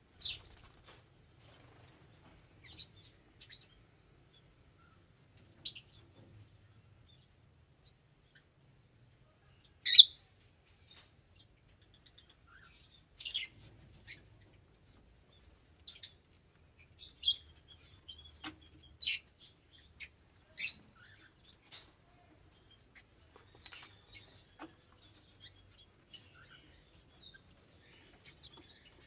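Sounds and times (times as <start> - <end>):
parrots chirping: 9.9 - 10.2.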